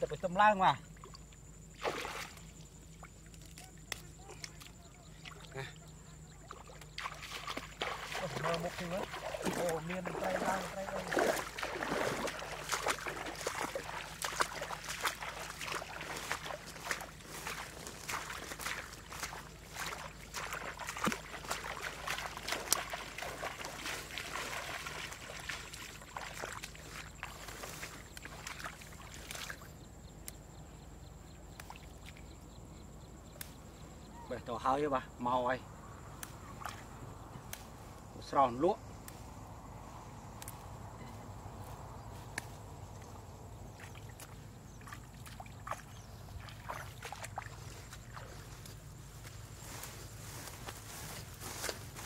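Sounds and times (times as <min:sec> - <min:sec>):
footsteps splashing in shallow water: 0:00.9 - 0:30.5, 0:31.4 - 0:32.5, 0:35.9 - 0:52.0
weeds rustling and swishing: 0:07.1 - 0:29.5, 0:46.2 - 0:52.0
light clicks and snaps: 0:36.2 - 0:36.8, 0:37.4 - 0:37.7.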